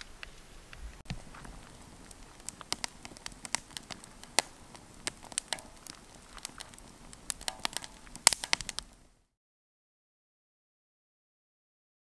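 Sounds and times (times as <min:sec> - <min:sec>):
campfire crackling and popping: 0:00.0 - 0:09.3.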